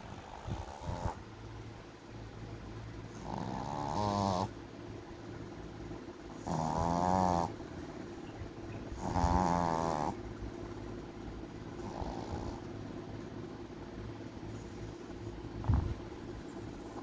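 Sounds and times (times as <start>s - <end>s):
dog snoring: 0.0s - 1.2s, 3.1s - 4.6s, 6.3s - 7.6s, 8.9s - 10.2s, 11.7s - 12.7s.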